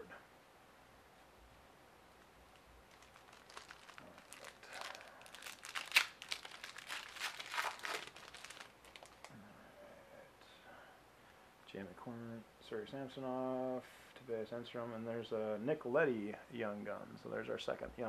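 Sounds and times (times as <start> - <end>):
wrapper being torn and crinkled: 2.5 - 9.3.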